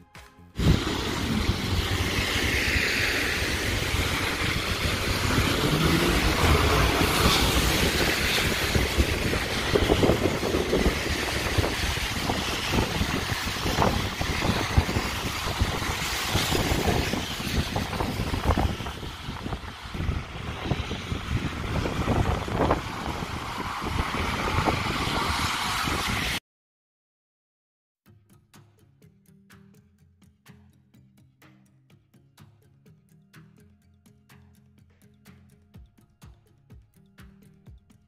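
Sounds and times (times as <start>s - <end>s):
cars and buses passing: 0.6s - 26.4s
wind buffeting microphone: 0.6s - 26.4s.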